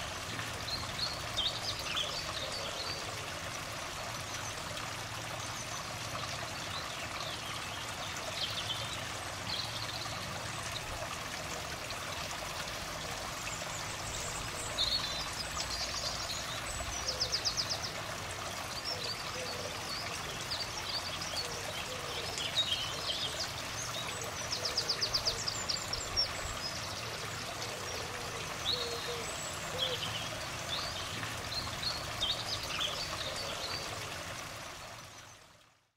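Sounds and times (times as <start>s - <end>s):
small birds singing: 0.0s - 3.1s, 13.5s - 18.0s, 18.6s - 34.1s.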